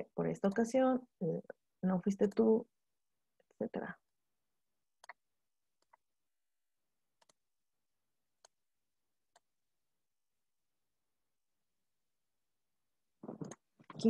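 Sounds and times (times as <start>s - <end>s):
computer mouse clicks: 7.2s - 7.4s.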